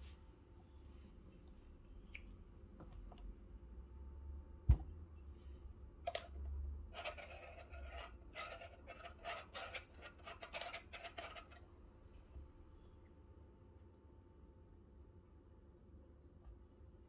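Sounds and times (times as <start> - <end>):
metal spoon scraping coffee grounds: 6.9 - 11.6.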